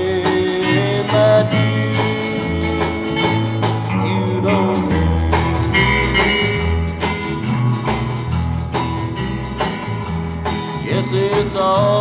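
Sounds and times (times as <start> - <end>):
country music band playing: 0.0 - 12.0.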